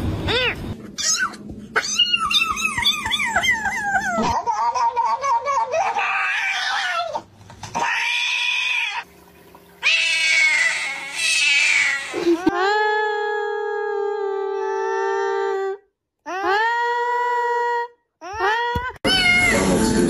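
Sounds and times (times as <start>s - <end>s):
cat yowling: 0.3s - 4.4s, 5.8s - 7.2s, 7.8s - 9.0s, 9.8s - 12.2s, 19.1s - 19.6s.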